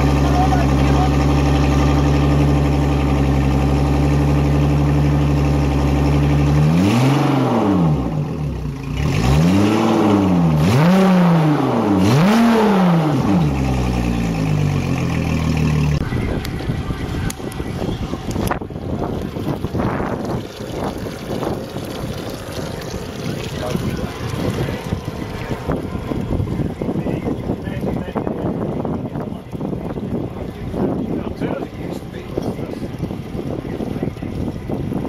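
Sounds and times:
outboard motor idling and revving: 0.0 - 35.0.

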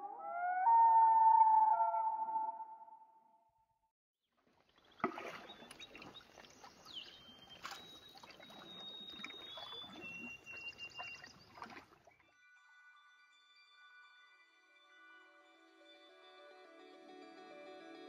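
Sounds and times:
paddle dipping in water: 4.4 - 12.1
water trickling along hull: 4.4 - 12.3
bird whistling song: 5.3 - 11.8
soft music: 12.1 - 18.0.

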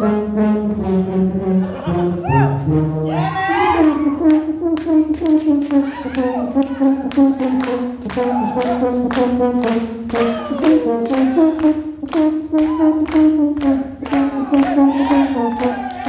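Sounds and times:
rhythmic clapping: 3.8 - 16.0.

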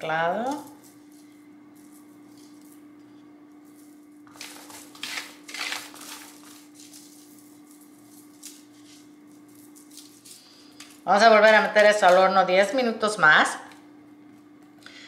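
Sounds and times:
faint hum: 0.0 - 15.0
chickpeas rustling: 3.6 - 11.9
foil crinkling: 3.7 - 12.1.

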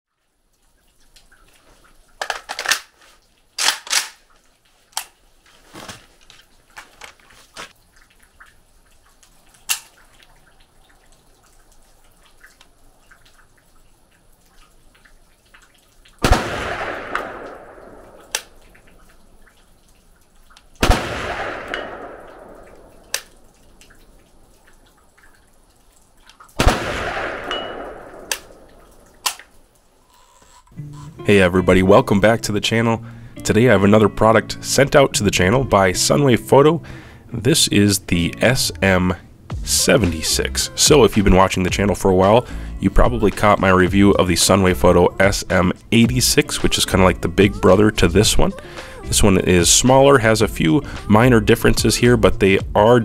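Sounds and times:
rifle shots with echo: 16.2 - 18.6, 20.8 - 23.0, 26.6 - 28.7.

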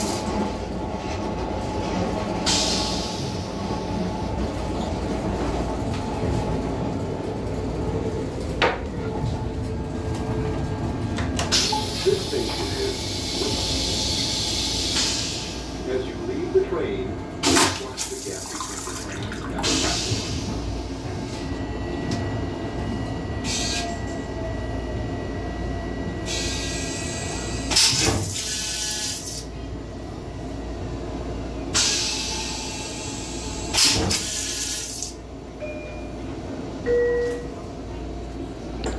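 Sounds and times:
train rumbling: 0.0 - 38.9
toilet flushing water hiss: 17.4 - 20.7, 31.8 - 35.2.

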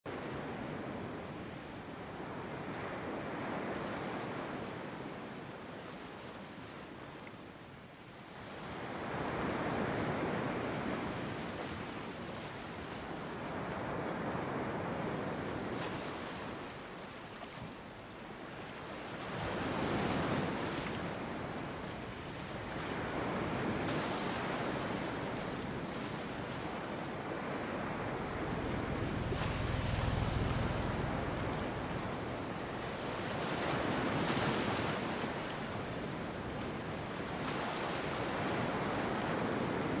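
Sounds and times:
ocean waves breaking: 9.0 - 40.0.

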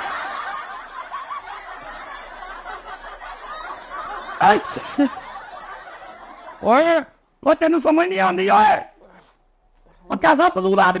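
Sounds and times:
people chuckling: 0.0 - 7.2.

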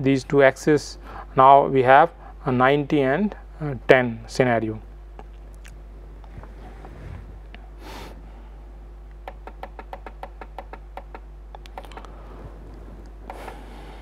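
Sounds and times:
steady electrical hum: 0.0 - 14.0
breathy rush of air: 6.4 - 8.8, 12.0 - 14.0.

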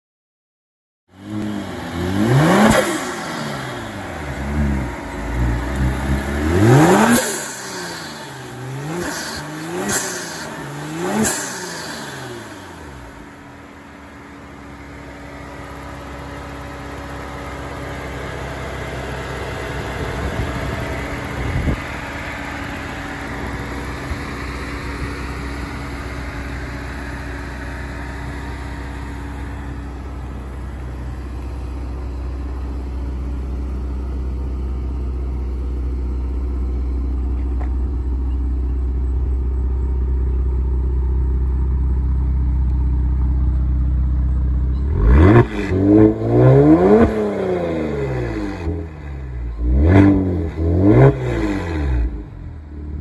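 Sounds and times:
car engine revving and idling: 1.1 - 53.0.

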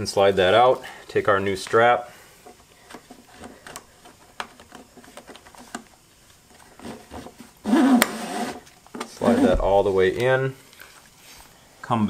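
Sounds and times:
foot strap clicks and rustles: 2.4 - 9.8.

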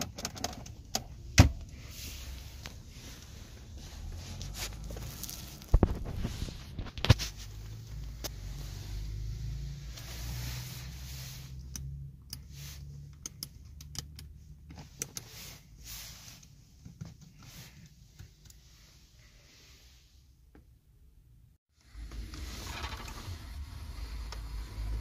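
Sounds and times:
car buttons and switches clicking: 11.6 - 15.3.

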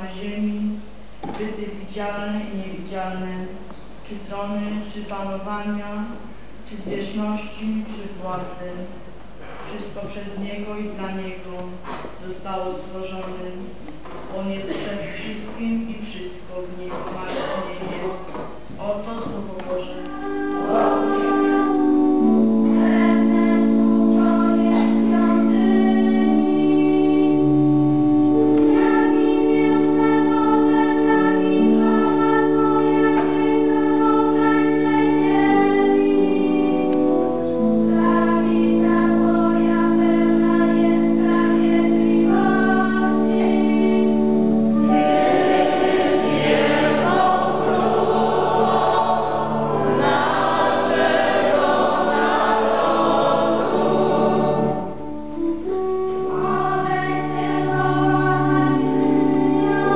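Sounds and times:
choir singing liturgical chant: 20.1 - 27.4, 28.6 - 55.0, 56.4 - 59.9.

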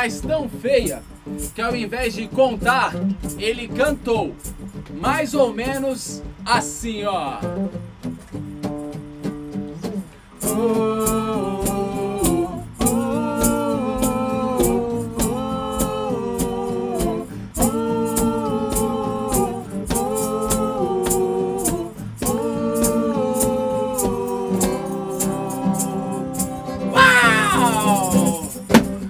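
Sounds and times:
strummed acoustic guitar: 0.0 - 29.0
person singing: 9.8 - 29.0.

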